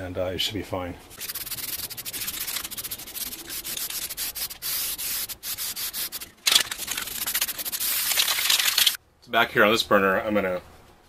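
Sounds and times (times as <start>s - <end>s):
spray paint can hissing: 1.2s - 9.0s.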